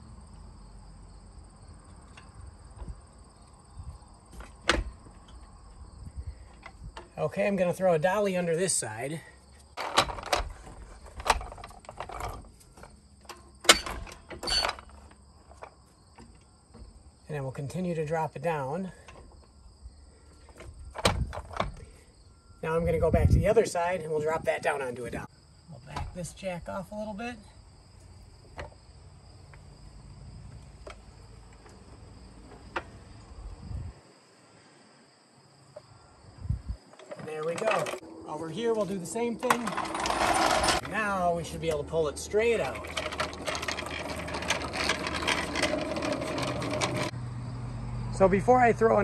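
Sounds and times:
wind rumble on microphone: 0:03.7 - 0:04.1, 0:05.7 - 0:07.0, 0:20.7 - 0:21.9, 0:22.8 - 0:23.6, 0:33.2 - 0:34.0, 0:36.2 - 0:36.8
wooden dolly scraping on concrete: 0:06.3 - 0:25.3, 0:36.9 - 0:47.2
dolly clunking against metal: 0:09.8 - 0:17.0, 0:36.9 - 0:38.0, 0:39.4 - 0:47.2.

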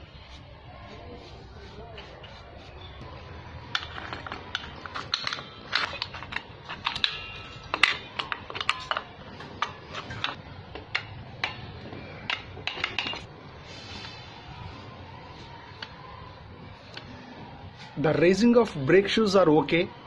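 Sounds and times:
metal brake parts clinking: 0:03.7 - 0:13.3.

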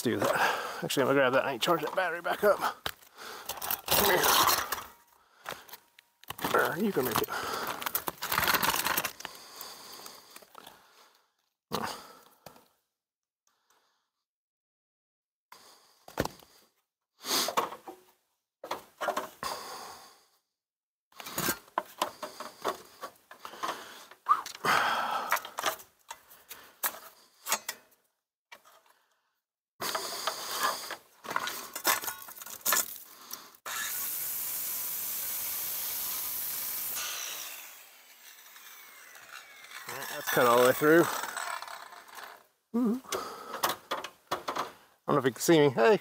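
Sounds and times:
power saw cutting wood: 0:33.6 - 0:42.5.

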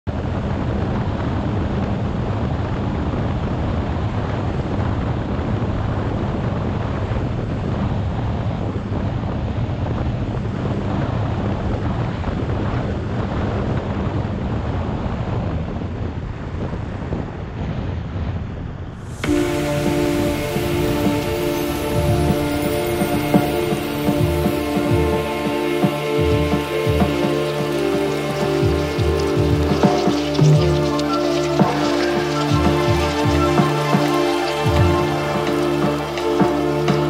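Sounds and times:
strong wind buffeting microphone: 0:00.1 - 0:37.0.

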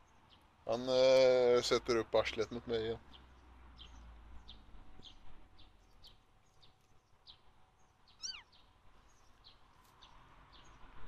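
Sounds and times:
small bird chirping: 0:02.8 - 0:11.0.

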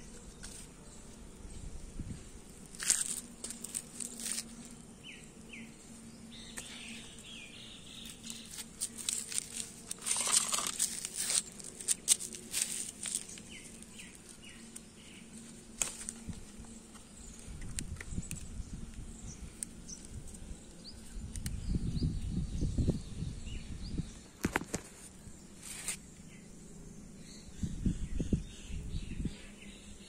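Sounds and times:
rustling leaves: 0:00.0 - 0:22.4, 0:24.4 - 0:26.0.

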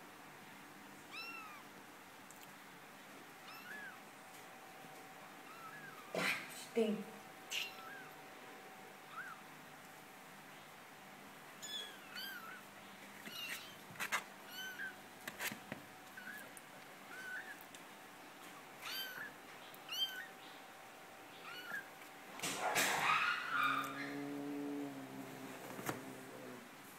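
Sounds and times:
kittens mewing: 0:03.4 - 0:04.0, 0:05.4 - 0:06.6, 0:07.5 - 0:08.2, 0:09.1 - 0:09.4, 0:11.6 - 0:15.0, 0:16.1 - 0:17.7, 0:18.8 - 0:20.4, 0:21.3 - 0:26.7
rustle: 0:07.2 - 0:26.9.

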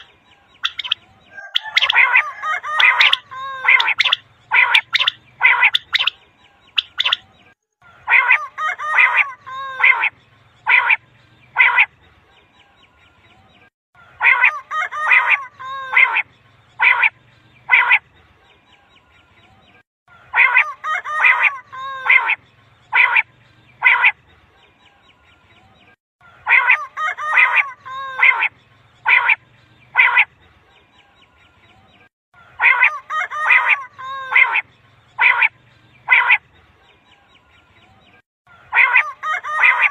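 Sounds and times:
quail calling: 0:00.0 - 0:07.3, 0:07.9 - 0:11.9, 0:14.1 - 0:16.2, 0:16.8 - 0:18.0, 0:20.2 - 0:24.2, 0:26.3 - 0:30.3, 0:32.4 - 0:36.4, 0:38.6 - 0:39.9.

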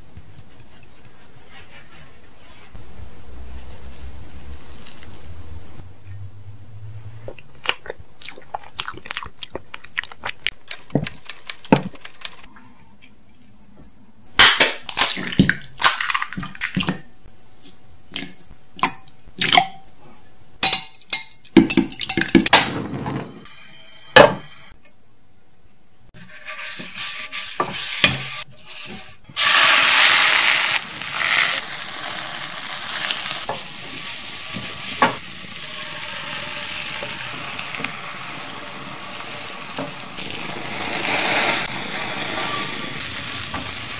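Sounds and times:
spoon clicking and tapping: 0:20.6 - 0:22.5
egg frying in pan: 0:29.4 - 0:43.9.

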